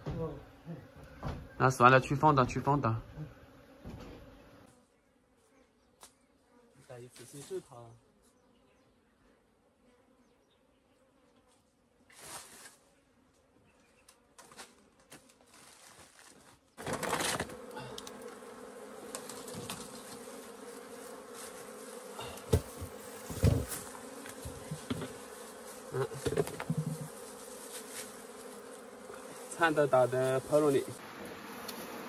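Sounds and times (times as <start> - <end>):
bees buzzing: 0.4 - 6.8, 16.6 - 32.0
wooden hive boxes knocking: 22.4 - 25.3, 25.9 - 27.2.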